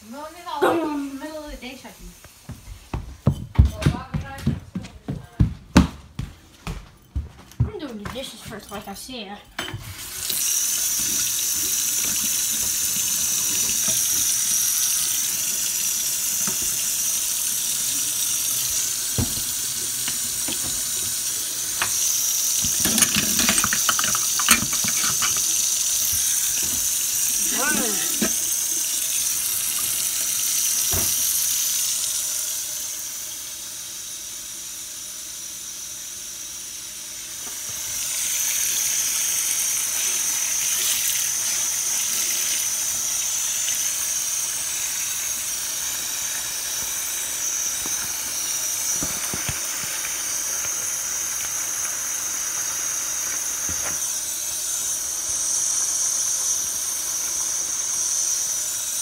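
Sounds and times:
tap running into a sink: 0:09.6 - 0:17.2, 0:18.2 - 0:31.8, 0:47.7 - 0:51.5
dishes knocking: 0:22.6 - 0:25.5.

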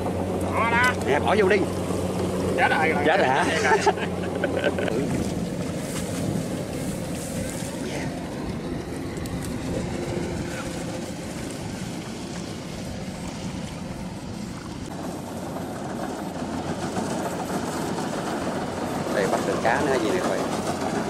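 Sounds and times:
harvester engine rumbling: 0:00.0 - 0:21.0.

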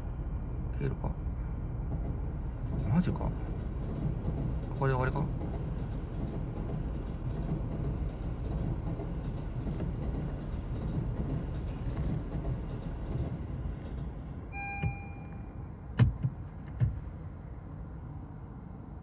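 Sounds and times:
train rumbling past: 0:00.0 - 0:19.0
short electronic beep: 0:14.6 - 0:15.6.

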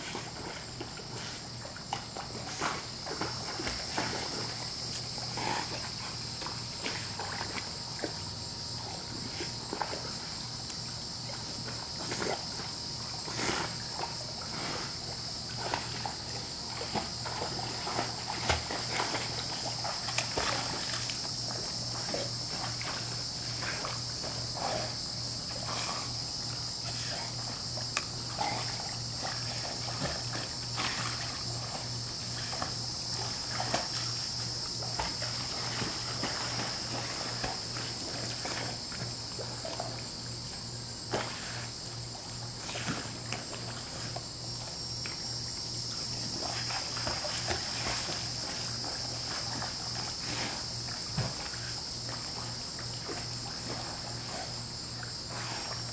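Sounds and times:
high-pitched insect chorus: 0:00.0 - 0:55.9.

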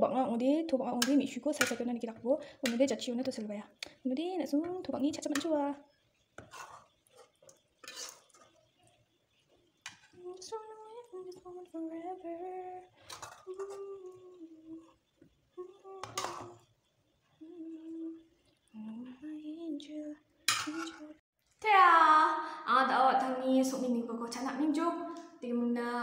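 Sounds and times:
utensil scraping a pan: 0:04.8 - 0:10.3, 0:12.9 - 0:14.2, 0:15.9 - 0:16.8, 0:20.5 - 0:21.2
person humming a slow tune: 0:10.2 - 0:15.0, 0:15.6 - 0:16.6, 0:17.4 - 0:21.2.

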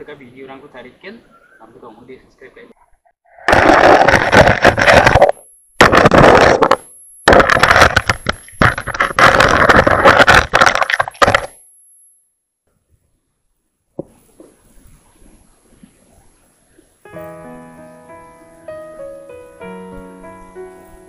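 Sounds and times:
water and grit knocking on case: 0:03.5 - 0:06.7, 0:07.3 - 0:11.5
crackling in waterproof camera housing: 0:05.9 - 0:11.6.

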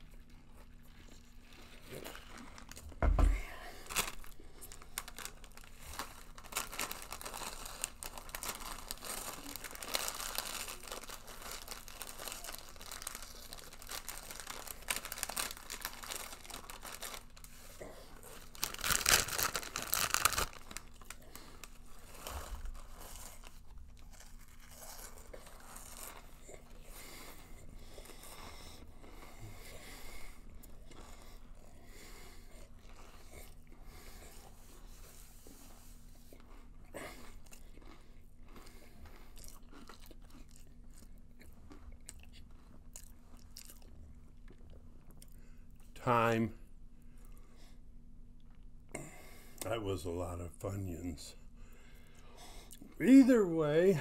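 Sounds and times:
snack bag crinkling: 0:00.1 - 0:31.4, 0:36.4 - 0:45.4
crunchy snack being eaten: 0:03.9 - 0:27.4, 0:37.0 - 0:45.4.

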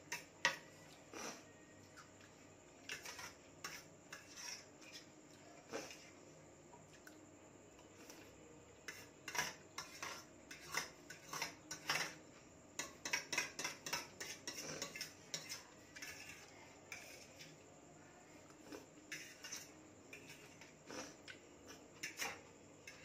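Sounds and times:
cutlery clinking on metal plate: 0:08.9 - 0:12.2, 0:12.8 - 0:17.5.

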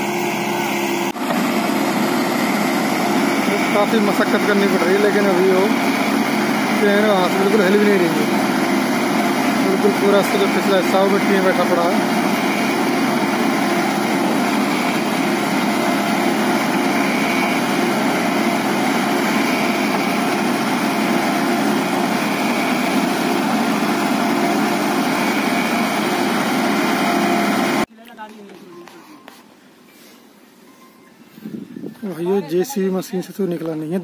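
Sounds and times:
diesel engine running: 0:00.0 - 0:27.9.

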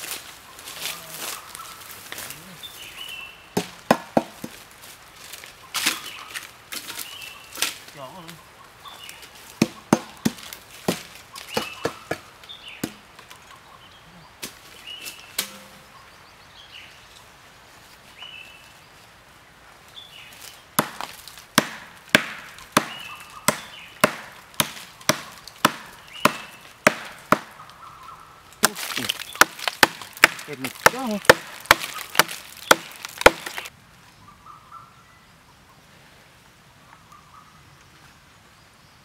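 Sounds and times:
blade chopping into tree trunk: 0:09.6 - 0:12.2, 0:15.4 - 0:15.7, 0:20.8 - 0:27.6, 0:28.6 - 0:33.7.

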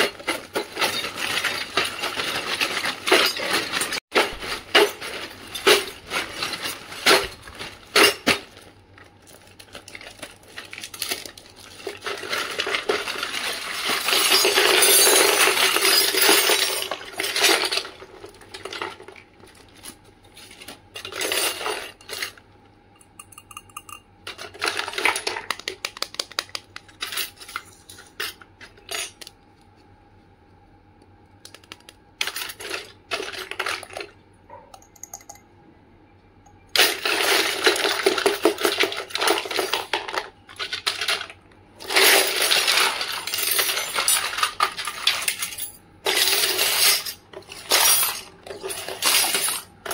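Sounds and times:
plastic bag crinkling: 0:00.7 - 0:14.3
toy kitchenware clinking: 0:23.0 - 0:25.6, 0:32.2 - 0:35.5.

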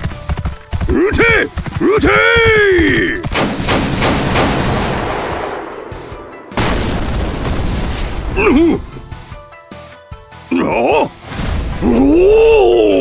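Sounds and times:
gunfire volley: 0:03.2 - 0:08.4
heavy gun blast: 0:03.3 - 0:08.4.

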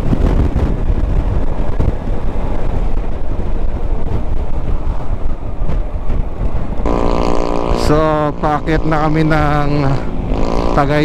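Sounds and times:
scooter riding at cruising speed: 0:00.0 - 0:11.0
wind noise on microphone: 0:00.0 - 0:11.0.

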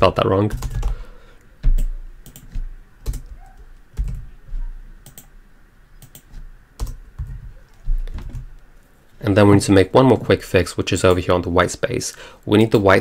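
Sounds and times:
keyboard keys tapping: 0:00.5 - 0:01.0, 0:01.6 - 0:05.3, 0:06.0 - 0:08.5.

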